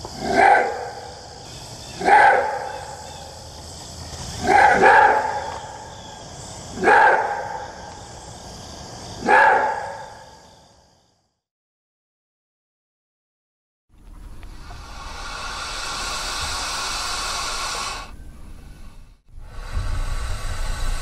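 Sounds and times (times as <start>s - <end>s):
steady high hiss: 0.0s - 9.2s, 14.1s - 21.0s
wolf hoarse barking: 0.2s - 1.2s, 2.0s - 3.0s, 4.4s - 5.7s, 6.7s - 7.8s, 9.2s - 10.2s.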